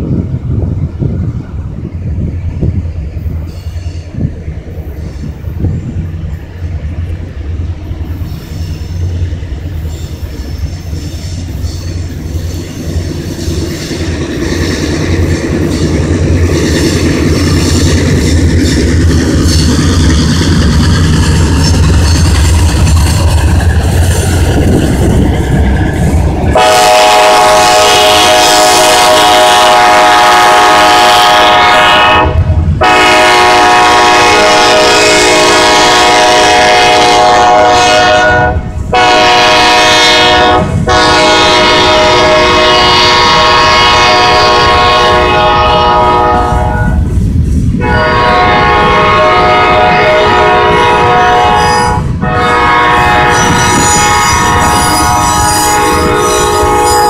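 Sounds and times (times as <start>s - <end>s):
train rumbling past: 0.0s - 57.0s
locomotive horn blasts: 26.5s - 47.0s, 47.8s - 57.0s.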